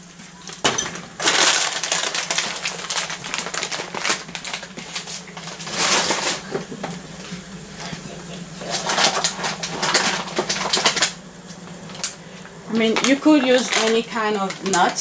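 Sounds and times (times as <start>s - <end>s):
plastic bag crinkling: 0.4s - 15.0s
nuts rattling in a bag: 1.2s - 6.4s, 12.8s - 15.0s.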